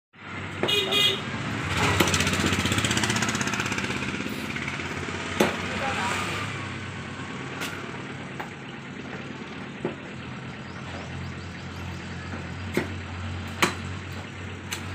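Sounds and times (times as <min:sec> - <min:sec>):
vehicle engine running: 0:00.2 - 0:14.9
sharp knocks: 0:05.3 - 0:05.7, 0:12.3 - 0:14.0.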